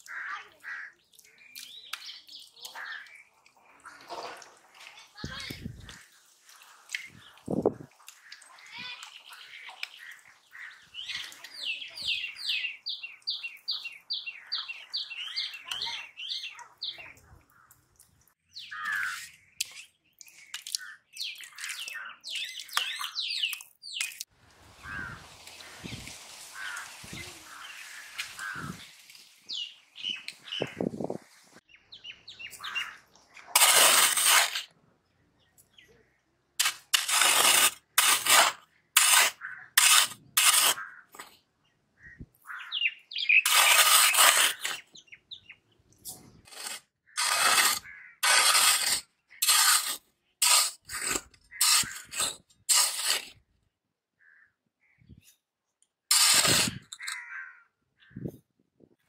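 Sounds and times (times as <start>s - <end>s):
hand hoe scraping sandy soil: 24.6s - 31.3s, 32.6s - 34.8s, 36.6s - 41.4s, 43.2s - 45.0s, 46.0s - 53.4s, 56.1s - 57.2s.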